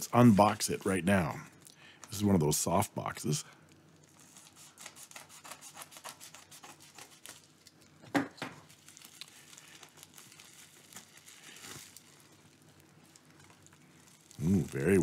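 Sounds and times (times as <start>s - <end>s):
plastic mailer crinkling and rustling: 0.0s - 1.2s, 8.5s - 15.0s.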